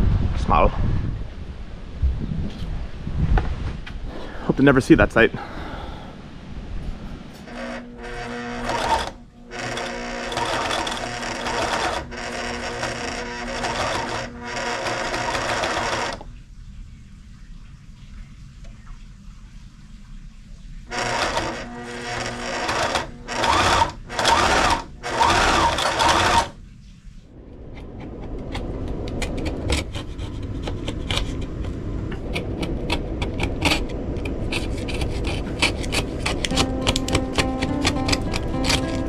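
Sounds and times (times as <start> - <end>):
sewing machine stitching: 7.5 - 16.2, 20.9 - 26.6, 34.5 - 39.0.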